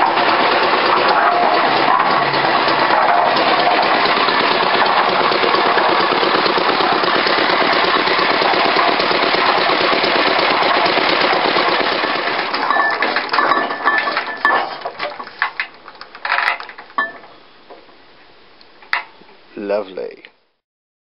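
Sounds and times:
stationary engine running: 0.0s - 12.7s.

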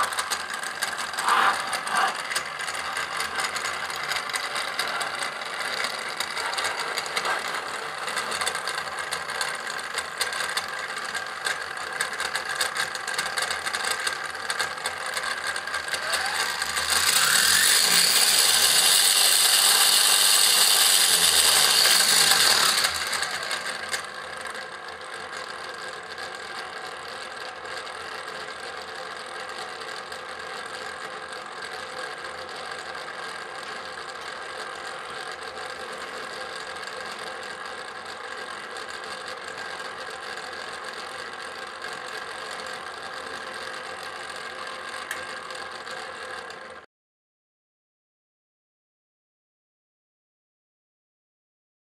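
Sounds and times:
electric motor whirring: 0.0s - 10.0s, 15.2s - 24.2s.

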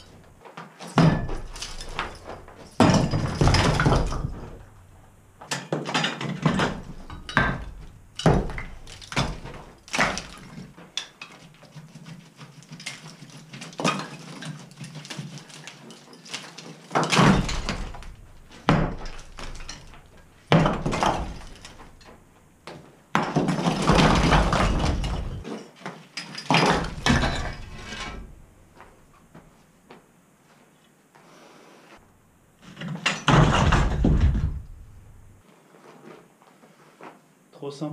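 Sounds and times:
plaster and brick crashing: 0.0s - 28.4s, 32.7s - 35.0s
falling debris clattering: 0.9s - 11.4s, 12.6s - 22.4s, 23.2s - 28.5s, 32.7s - 35.4s.

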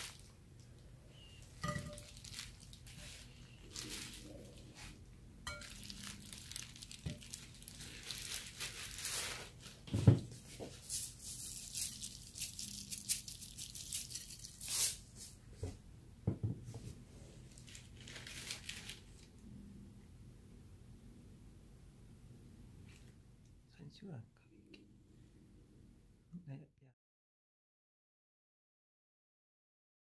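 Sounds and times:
plastic crinkling and rustling: 0.0s - 0.4s, 1.2s - 15.4s, 17.4s - 19.3s.

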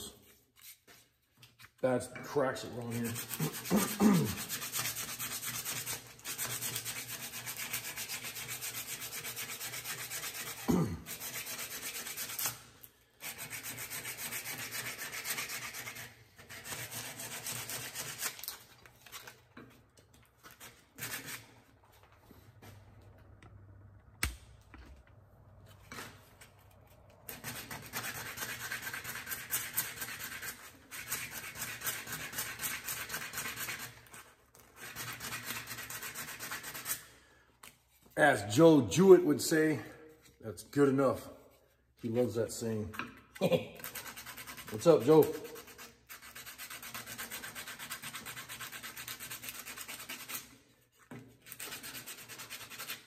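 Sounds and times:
sandpaper rasping on wood: 2.6s - 19.2s, 20.5s - 21.6s, 27.3s - 37.1s, 43.5s - 50.7s, 51.4s - 53.0s.

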